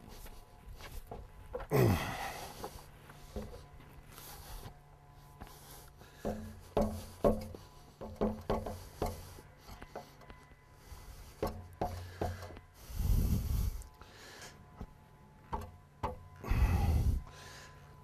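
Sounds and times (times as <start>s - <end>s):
boot kicking wooden post: 6.2s - 9.2s.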